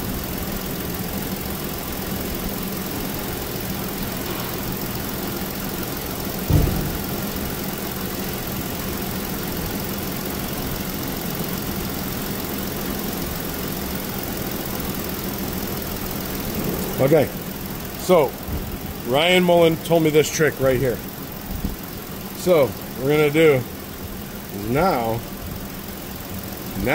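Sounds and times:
car engine idling: 0:00.0 - 0:26.9
short thump: 0:06.5 - 0:07.1.

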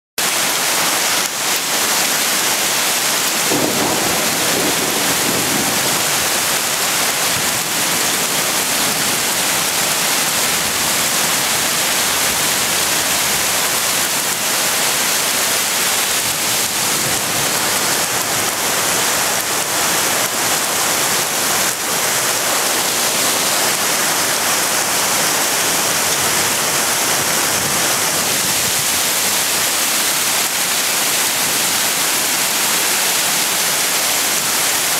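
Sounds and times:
hail and rain pelting: 0:00.2 - 0:34.9
thunder rumble: 0:03.1 - 0:11.6.

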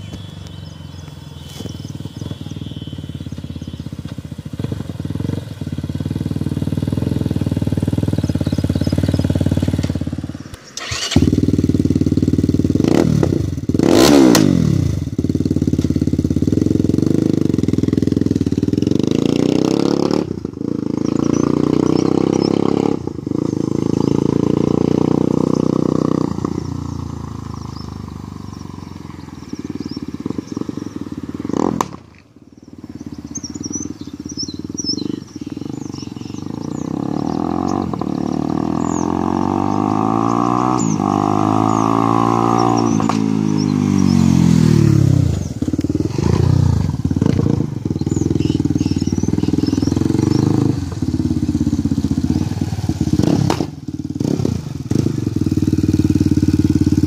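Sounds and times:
motorcycle engine passing by: 0:00.0 - 0:57.0
motorcycle engine revving: 0:00.0 - 0:57.0.

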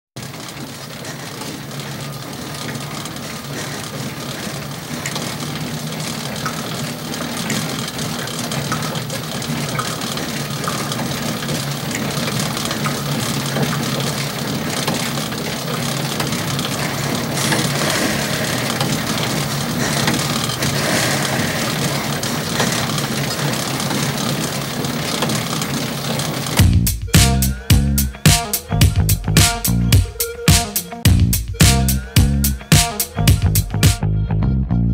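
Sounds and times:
bike flywheels whirring: 0:00.2 - 0:27.1.

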